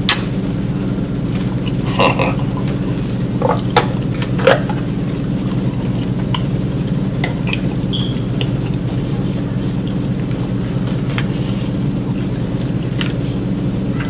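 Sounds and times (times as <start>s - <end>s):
steady low hum: 0.0s - 14.0s
chewing: 1.2s - 14.0s.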